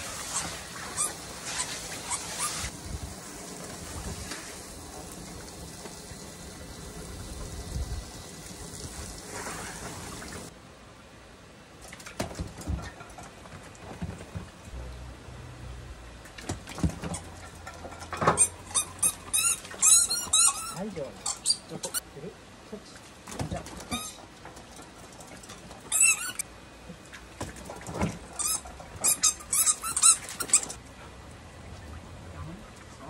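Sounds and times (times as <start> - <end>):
water hissing from a hose: 0.0 - 10.5
dogs' paws splashing in water: 22.9 - 33.0.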